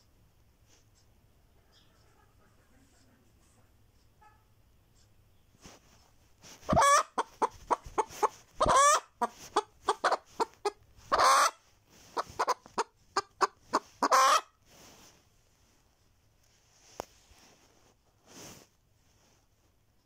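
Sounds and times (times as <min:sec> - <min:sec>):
hen cackling: 0:06.7 - 0:11.6, 0:12.2 - 0:14.5.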